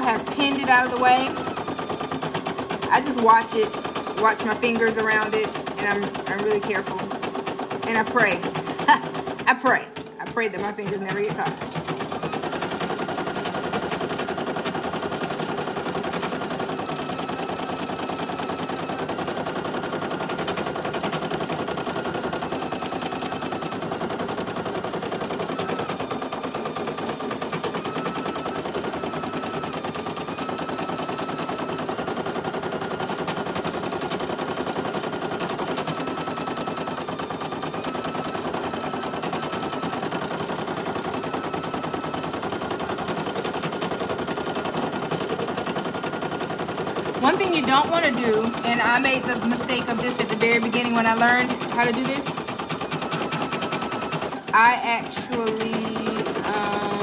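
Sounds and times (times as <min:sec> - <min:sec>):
embroidery machine needle clatter: 0:00.0 - 0:57.0.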